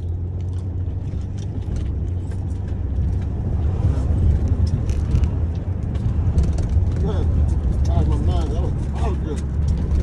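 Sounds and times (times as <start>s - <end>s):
car cabin rumble: 0.0s - 10.0s.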